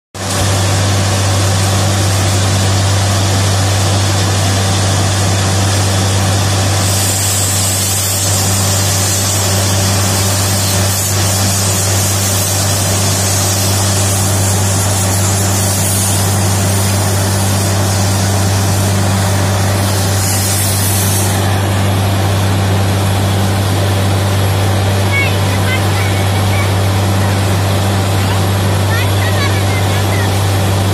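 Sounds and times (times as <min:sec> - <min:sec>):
drilling rig engine drone: 0:00.2 - 0:30.9
compressed air hissing: 0:06.4 - 0:29.4.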